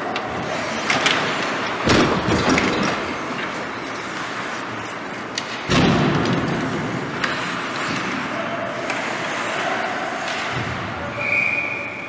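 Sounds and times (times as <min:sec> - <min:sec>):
skate blades scraping ice: 0:03.0 - 0:05.7, 0:06.5 - 0:10.7.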